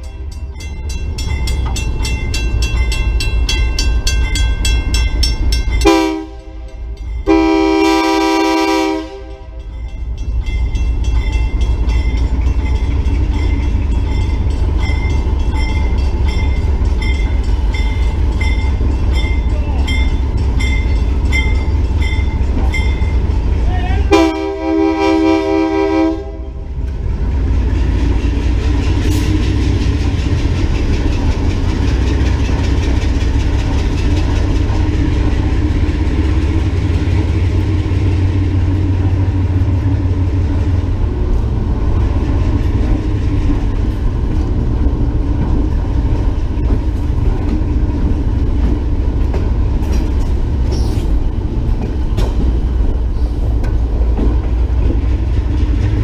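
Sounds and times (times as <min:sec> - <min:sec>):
locomotive engine rumble: 0:00.0 - 0:56.0
wheel-on-rail noise: 0:26.2 - 0:56.0.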